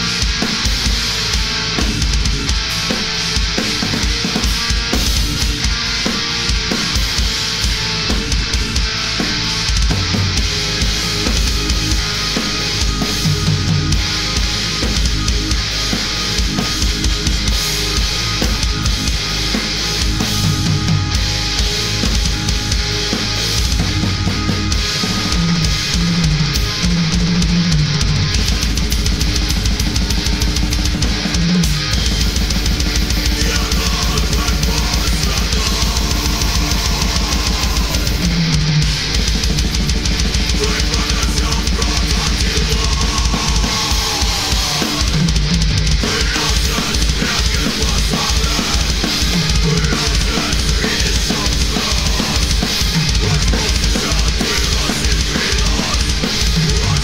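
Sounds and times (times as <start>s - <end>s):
backing music with guitar bends: 0.0s - 57.0s
heavy metal drumming: 0.0s - 57.0s
fast bass drum strokes: 6.5s - 57.0s.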